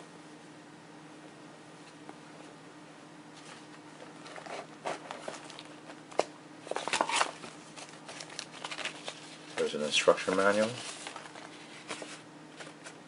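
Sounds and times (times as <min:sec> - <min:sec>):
plastic sleeve crinkling: 0:06.7 - 0:13.0.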